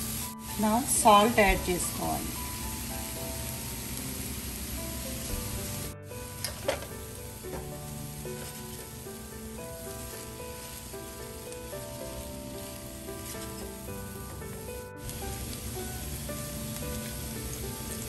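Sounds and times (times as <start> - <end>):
fried rice sizzling in a pan: 0.0 - 18.0
soft background music: 0.0 - 18.0
spatula stirring and scraping: 8.2 - 14.6.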